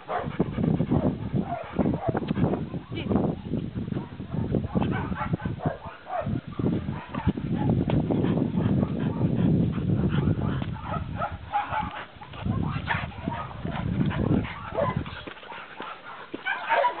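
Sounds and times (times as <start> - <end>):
dogs whining and yipping: 0.0 - 3.0, 10.1 - 17.0
dogs growling: 4.3 - 17.0.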